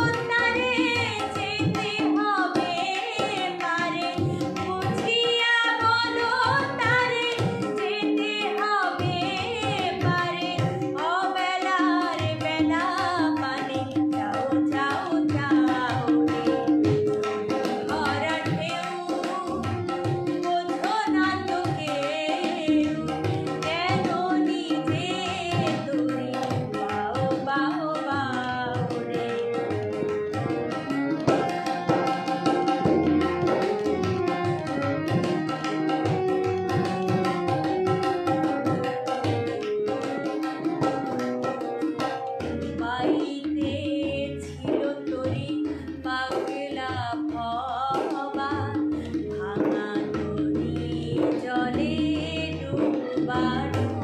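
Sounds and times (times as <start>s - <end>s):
hand drum: 0.0s - 54.0s
woman singing: 0.0s - 54.0s.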